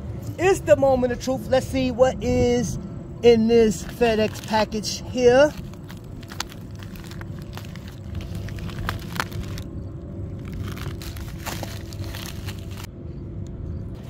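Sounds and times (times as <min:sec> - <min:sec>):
low rumble: 0:00.0 - 0:14.0
plastic bag crinkling and tearing: 0:03.8 - 0:12.9.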